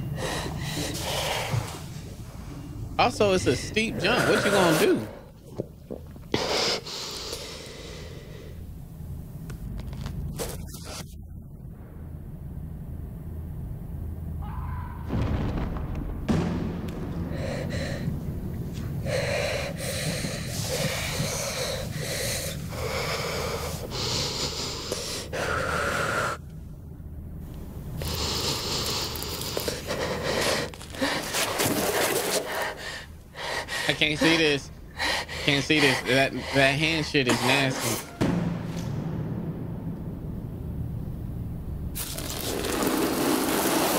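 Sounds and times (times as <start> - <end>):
woman breathing hard: 0.0 - 2.1, 6.4 - 8.6, 17.2 - 26.4, 28.0 - 38.1
low steady drone: 0.0 - 14.6, 16.4 - 31.3, 33.0 - 42.5.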